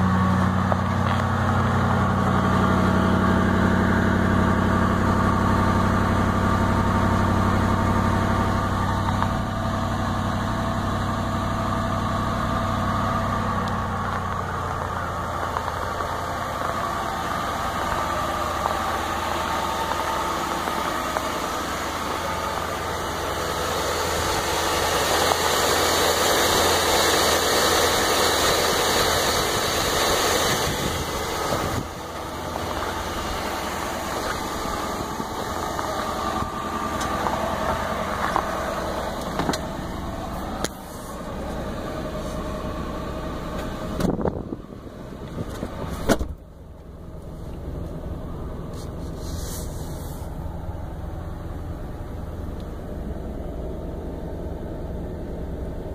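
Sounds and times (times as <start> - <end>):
car engine idling: 0.0 - 55.9
car door shutting: 39.2 - 39.8, 43.5 - 44.5, 45.3 - 46.5.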